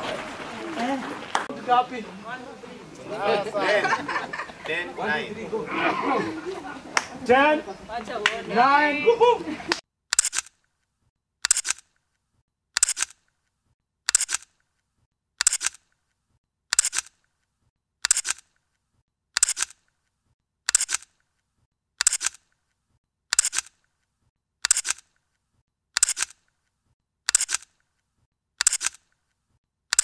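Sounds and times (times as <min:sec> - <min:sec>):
camera shutter clicking: 0:10.1 - 0:10.6, 0:11.4 - 0:12.0, 0:12.8 - 0:13.3, 0:14.1 - 0:14.6, 0:15.4 - 0:15.9, 0:16.7 - 0:17.2, 0:18.0 - 0:18.6, 0:19.4 - 0:19.9, 0:20.7 - 0:21.2, 0:22.0 - 0:22.5, 0:23.3 - 0:23.8, 0:24.6 - 0:25.2, 0:26.0 - 0:26.5, 0:27.3 - 0:27.8, 0:28.6 - 0:29.1.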